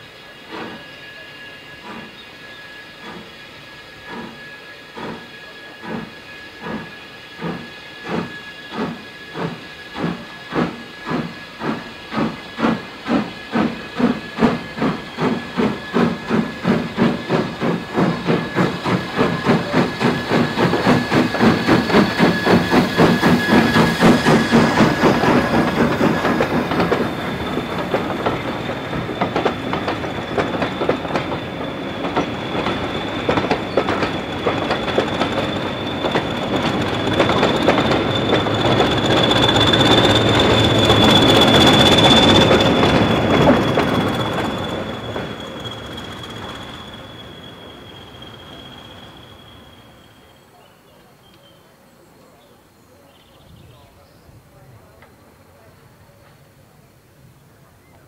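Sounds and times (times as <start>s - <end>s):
steam hiss: 0.0s - 50.6s
steam locomotive exhaust chuffing: 0.0s - 50.6s
wheel squeal: 0.4s - 50.6s.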